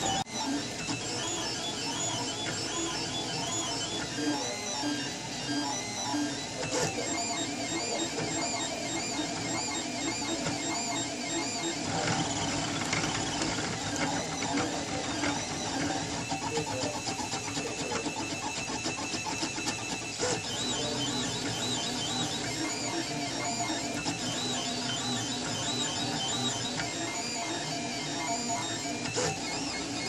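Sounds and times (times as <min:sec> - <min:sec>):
printer stepper motors whining: 0:00.0 - 0:30.0.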